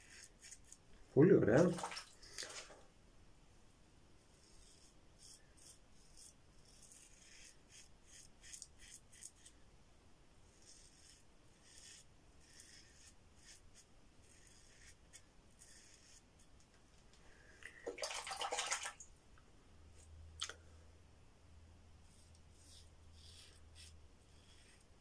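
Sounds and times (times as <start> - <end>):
razor rasping through stubble: 0.0 - 0.9, 4.4 - 9.6, 10.5 - 16.2, 22.1 - 25.0.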